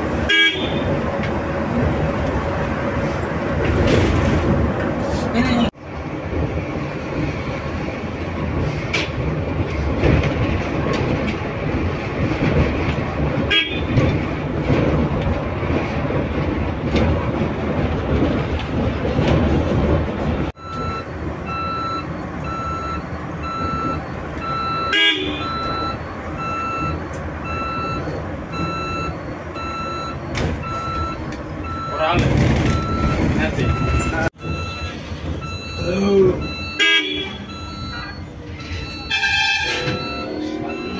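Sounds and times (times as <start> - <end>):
bus road and tyre noise: 0.0 - 40.9
electronic warning beep: 20.6 - 40.9.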